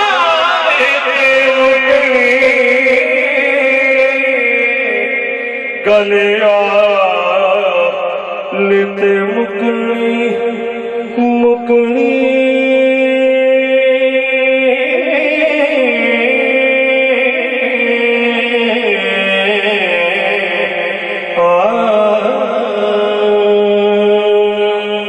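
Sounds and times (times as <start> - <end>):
man singing into a microphone: 0.0 - 25.0.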